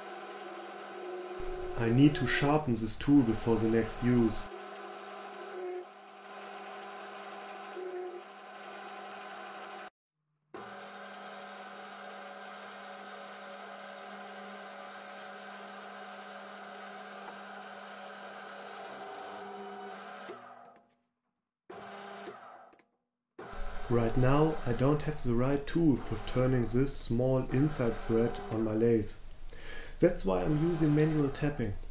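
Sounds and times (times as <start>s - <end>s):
metal lathe humming: 0.0s - 9.9s, 23.4s - 29.0s, 30.2s - 31.6s.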